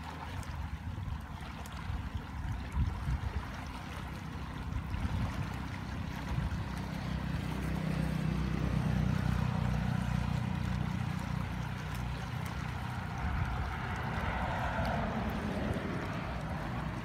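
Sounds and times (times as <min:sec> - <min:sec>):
floodwater rushing: 0:00.0 - 0:17.0
motorbike passing: 0:05.4 - 0:17.0
car passing: 0:06.6 - 0:17.0.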